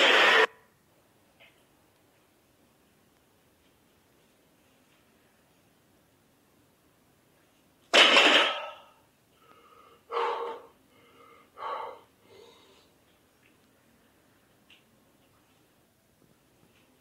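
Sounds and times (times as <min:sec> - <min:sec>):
loud sudden noise: 0:00.0 - 0:00.5
person breathing heavily: 0:09.3 - 0:13.0.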